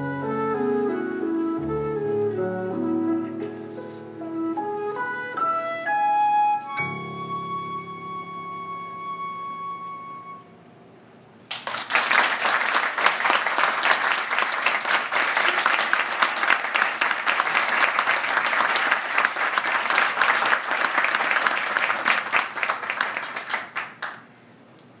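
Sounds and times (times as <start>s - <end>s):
flute note: 0.0s - 10.7s
audience clapping: 11.4s - 24.3s.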